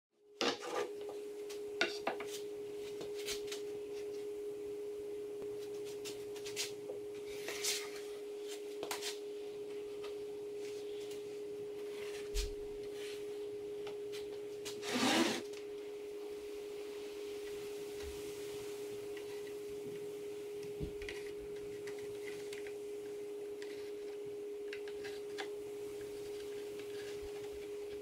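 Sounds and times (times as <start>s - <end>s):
steady hum: 0.2s - 28.0s
wood scraping: 14.7s - 15.5s.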